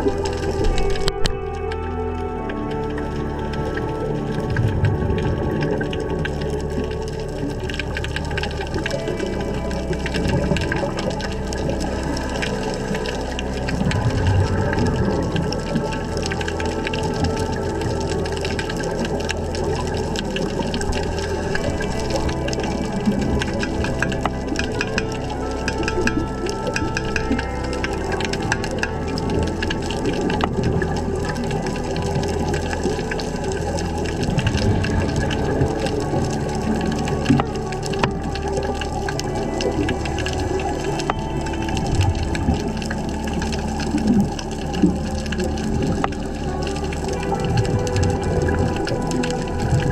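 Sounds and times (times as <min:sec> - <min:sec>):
low rumble of water: 0:00.0 - 0:49.9
sharp underwater clicks: 0:00.0 - 0:49.9.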